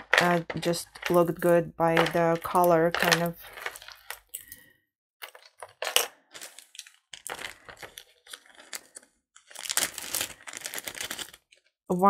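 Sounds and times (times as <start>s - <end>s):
beads clicking and rattling: 0.0s - 4.6s, 5.2s - 11.5s.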